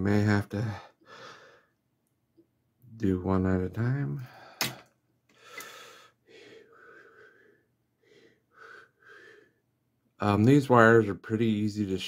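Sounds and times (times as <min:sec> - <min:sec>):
soft breaths: 0:04.2 - 0:09.8.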